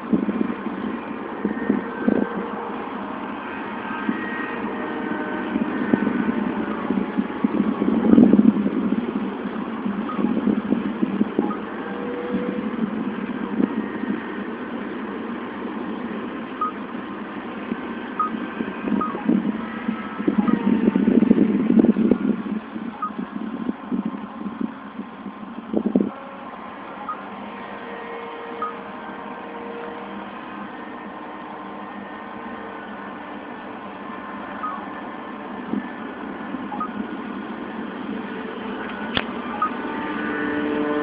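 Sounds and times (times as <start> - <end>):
model plane motor droning: 0.0 - 9.0, 10.2 - 22.4, 25.9 - 41.0.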